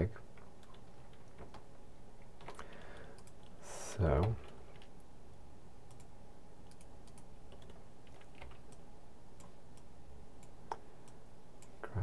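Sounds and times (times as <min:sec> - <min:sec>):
low steady hum: 0:00.0 - 0:12.0
keyboard and mouse clicks: 0:00.3 - 0:01.7, 0:02.4 - 0:03.6, 0:05.9 - 0:08.8.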